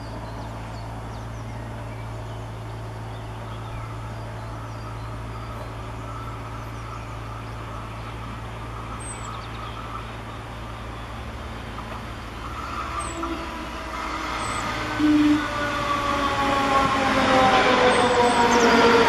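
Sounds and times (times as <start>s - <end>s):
bird chirping: 0.0s - 11.2s
electric train approaching: 0.0s - 19.0s.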